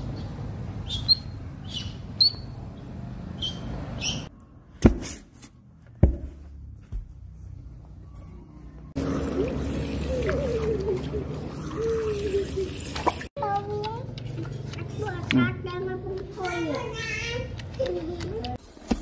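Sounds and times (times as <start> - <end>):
baby otter chirping: 0.9 - 2.6.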